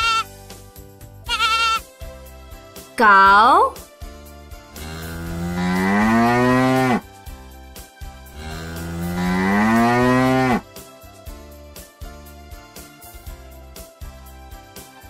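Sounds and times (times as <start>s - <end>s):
cow mooing: 4.8s - 7.0s, 8.4s - 10.6s.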